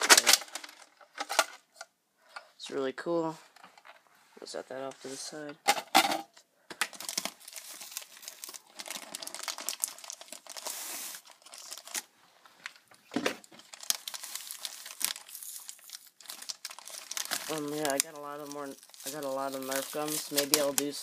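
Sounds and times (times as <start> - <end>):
plastic packaging crinkling: 0.0 - 1.6, 6.8 - 21.0.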